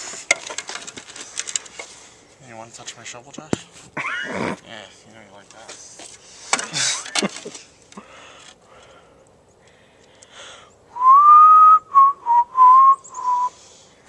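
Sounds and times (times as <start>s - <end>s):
person whistling: 11.0s - 13.6s.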